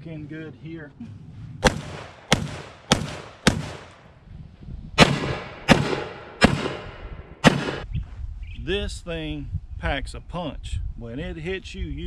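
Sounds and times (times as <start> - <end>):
shotgun shots echoing: 1.6 - 4.0, 5.0 - 7.9.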